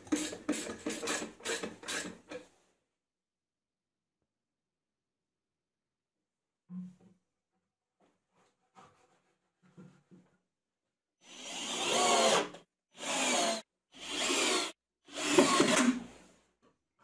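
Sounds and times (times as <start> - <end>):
cordless drill boring wood: 11.2 - 16.0.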